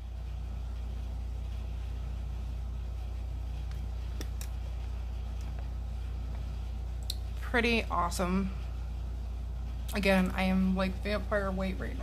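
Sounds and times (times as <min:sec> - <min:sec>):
room hum: 0:00.0 - 0:12.0.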